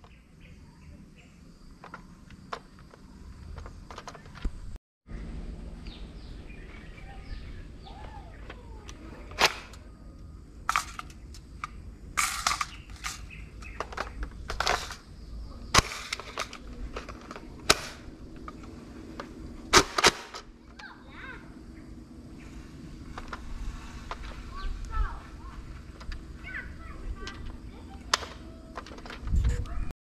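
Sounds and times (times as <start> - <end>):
plastic blaster clacks: 28.1 - 29.2.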